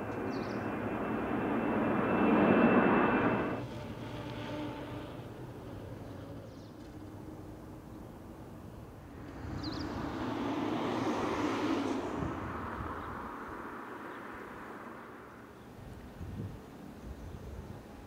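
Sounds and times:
passing vehicle engine: 9.1 - 15.5.

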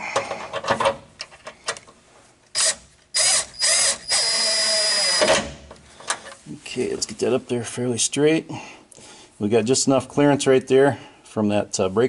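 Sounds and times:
cordless power driver whining: 2.6 - 5.6.

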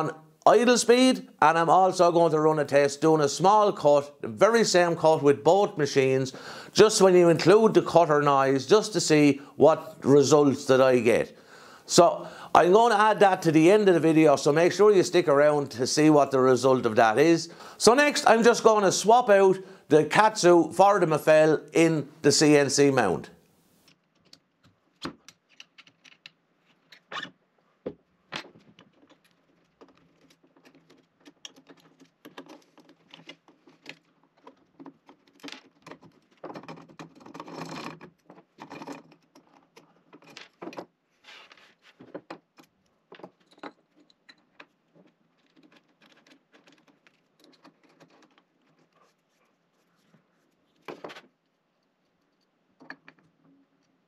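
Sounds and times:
metal parts clicking and clinking: 28.5 - 40.9, 42.5 - 49.0.

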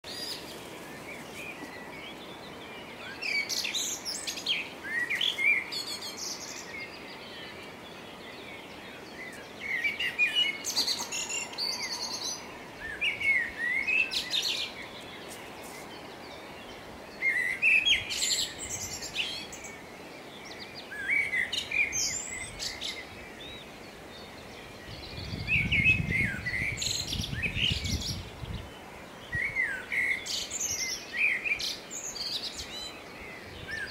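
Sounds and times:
songbirds singing: 0.0 - 33.9
faint hiss: 0.1 - 33.9.

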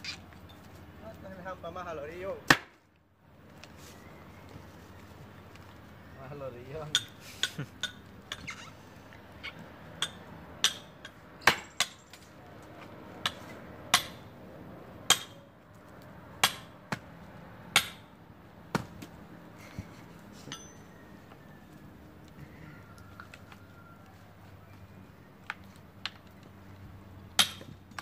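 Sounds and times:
hammer striking steel wedge: 10.0 - 12.1, 13.2 - 14.2, 15.1 - 15.4, 16.4 - 17.0, 17.7 - 18.1, 27.4 - 28.0.

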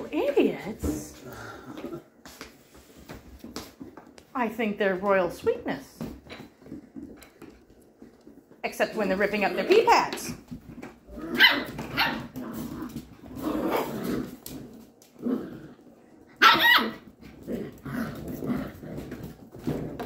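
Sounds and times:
puppies barking and growling: 10.7 - 20.0.

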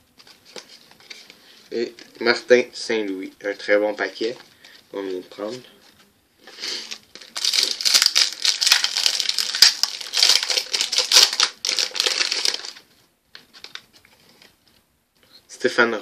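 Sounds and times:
foil wrapper crinkling: 6.8 - 12.8.

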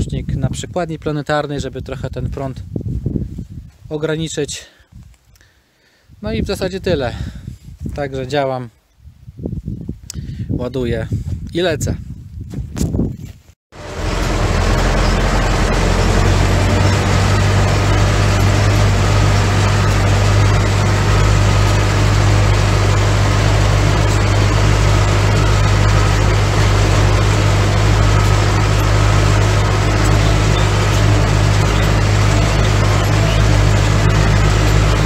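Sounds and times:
tractor diesel engine running: 13.8 - 35.0.

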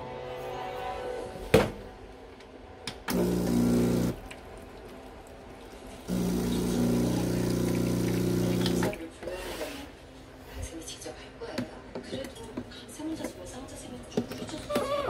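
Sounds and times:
espresso machine pump buzzing: 3.1 - 4.2, 6.1 - 9.0
water flowing through group head: 3.3 - 9.0.

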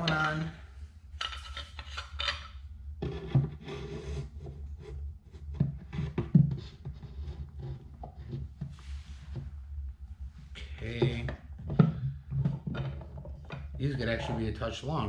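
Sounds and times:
clamp knocking and scraping: 0.0 - 0.6, 1.2 - 4.2, 5.4 - 9.5, 10.9 - 14.5.

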